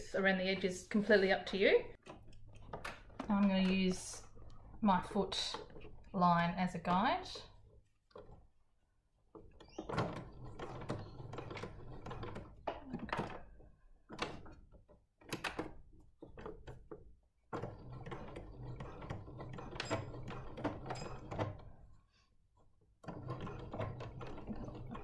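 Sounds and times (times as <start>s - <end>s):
sewing machine stitching: 9.4s - 14.6s, 17.5s - 21.9s, 23.0s - 25.0s.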